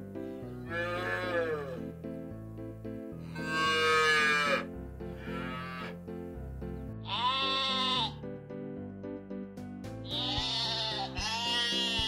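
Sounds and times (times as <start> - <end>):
background music: 0.0 - 12.0
sheep bleating: 0.6 - 1.8, 3.3 - 6.0, 7.0 - 8.2, 10.1 - 12.0.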